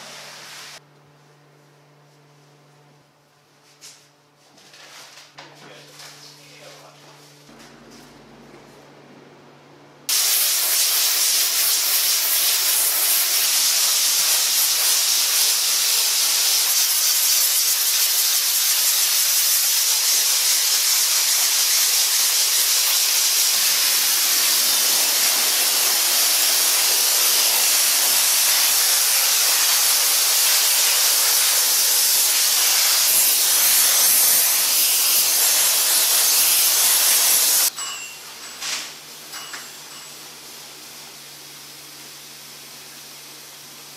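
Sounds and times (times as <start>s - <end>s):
steam cleaner hissing: 0.0s - 0.8s, 10.1s - 37.7s.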